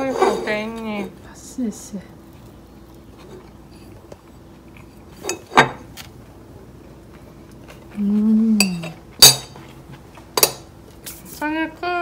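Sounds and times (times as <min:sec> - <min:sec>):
person humming: 0:08.0 - 0:08.9.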